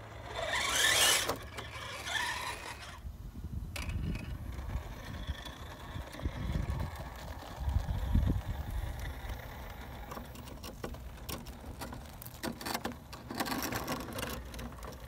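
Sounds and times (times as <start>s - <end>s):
rc truck motor whirring: 0.0s - 15.0s
tyres scrabbling on stone: 3.8s - 15.0s.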